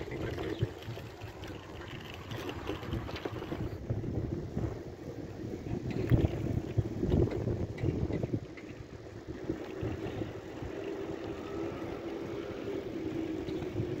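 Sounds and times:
car engine and road noise: 0.0s - 14.0s
wind buffeting microphone: 0.0s - 14.0s.

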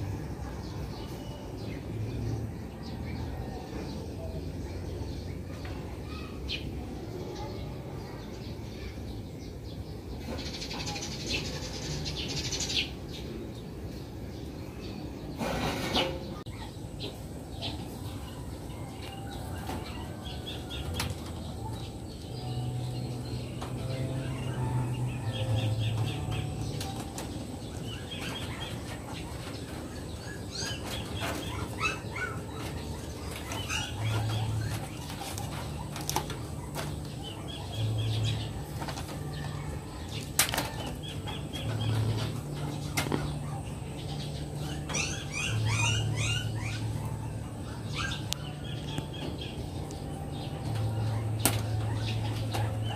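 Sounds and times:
bird chirping: 7.3s - 52.9s.

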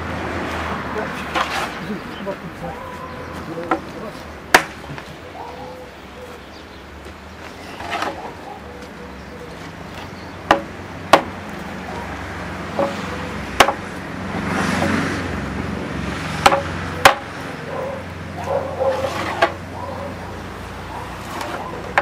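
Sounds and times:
hammer striking wooden wheel: 10.5s - 11.4s, 13.6s - 13.8s, 16.4s - 17.3s.

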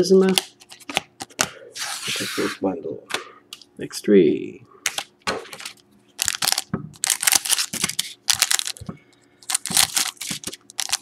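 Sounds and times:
foil packs crinkling: 5.5s - 11.0s.

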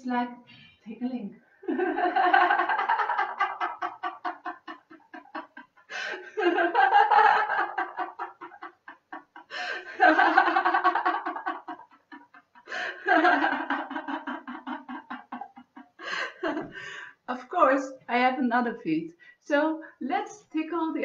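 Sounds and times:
woman laughing heartily: 1.6s - 17.2s.

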